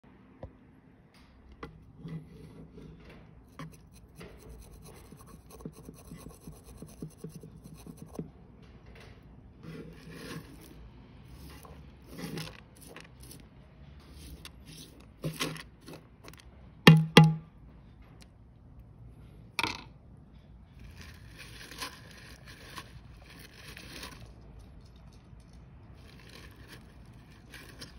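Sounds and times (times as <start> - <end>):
scraping and rustling: 9.4 - 16.5, 20.7 - 27.9.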